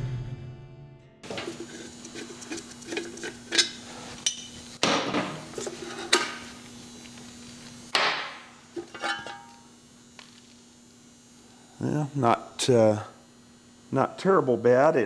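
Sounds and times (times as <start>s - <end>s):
metal tools clanking: 8.8s - 9.6s.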